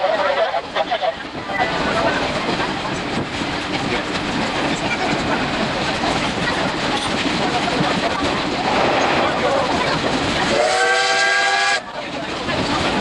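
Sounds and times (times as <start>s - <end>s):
train wheels clattering on rail: 0.2s - 13.0s
steam locomotive whistle: 10.5s - 11.9s.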